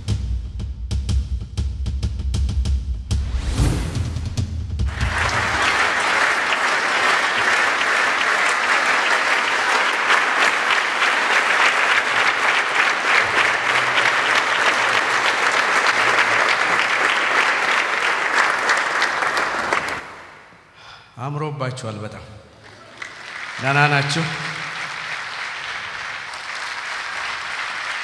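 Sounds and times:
large audience clapping: 4.9 - 20.6, 22.6 - 28.0.

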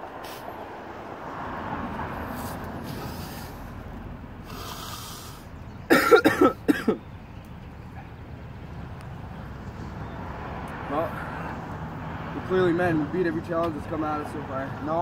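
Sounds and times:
man coughing hard: 5.9 - 7.0.

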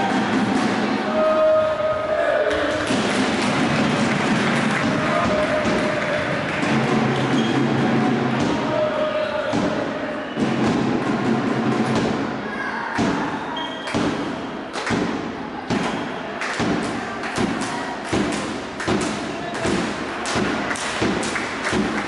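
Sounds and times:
ball struck and hitting boards: 16.6 - 22.0.

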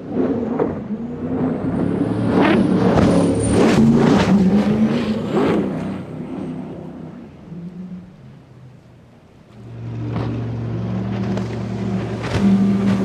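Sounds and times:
boat engines droning: 0.0 - 13.0
hull slamming waves splashing: 9.5 - 13.0.

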